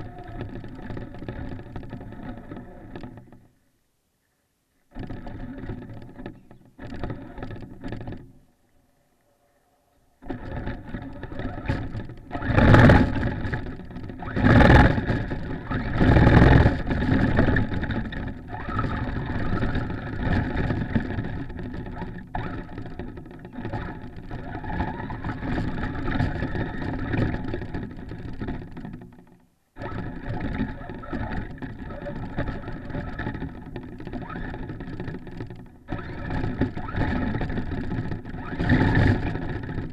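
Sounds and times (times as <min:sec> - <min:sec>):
toy truck motor whine: 0:00.0 - 0:03.1, 0:10.2 - 0:28.7, 0:29.8 - 0:39.9
tyres rumbling in snow: 0:10.2 - 0:29.0, 0:29.8 - 0:39.9.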